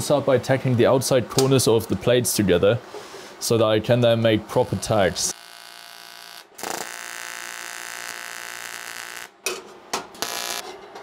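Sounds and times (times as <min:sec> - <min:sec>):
welding arc buzzing: 0:04.5 - 0:09.4, 0:10.1 - 0:10.7.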